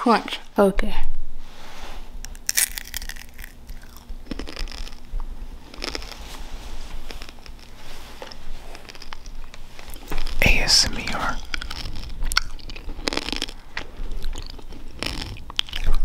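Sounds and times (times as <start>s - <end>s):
candy crunched and chewed: 2.2s - 6.2s, 7.1s - 7.7s, 8.3s - 16.0s.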